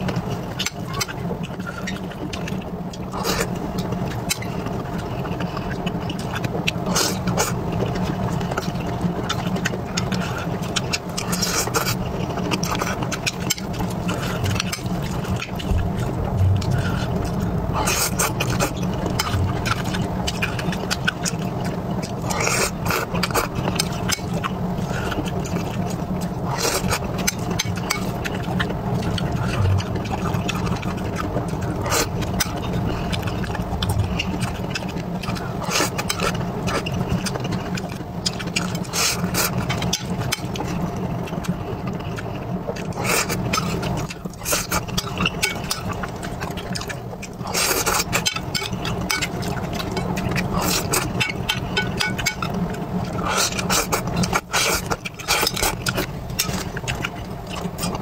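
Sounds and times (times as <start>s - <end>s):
chewing and mouth sounds: 0.0s - 58.0s
steady low hum: 0.0s - 58.0s.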